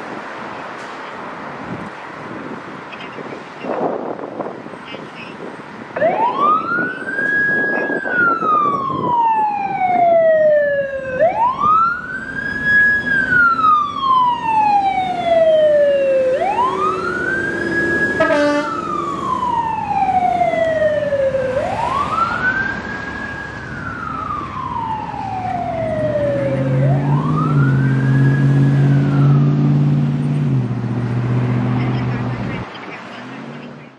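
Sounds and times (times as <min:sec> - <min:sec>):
fire engine siren wailing: 0:06.0 - 0:32.6.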